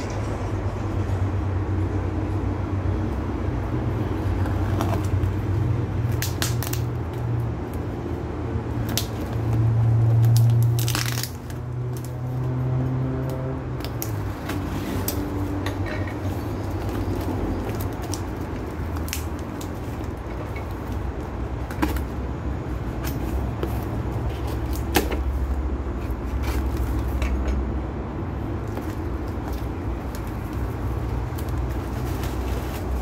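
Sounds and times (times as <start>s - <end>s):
knife cutting tape and cardboard: 4.2s - 8.1s, 8.7s - 22.2s, 22.8s - 27.5s.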